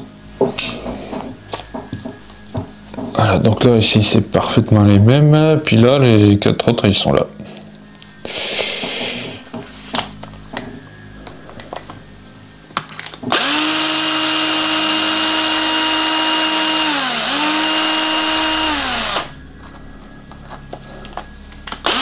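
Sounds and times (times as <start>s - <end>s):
electric screwdriver whining: 13.3s - 19.4s, 21.7s - 22.0s.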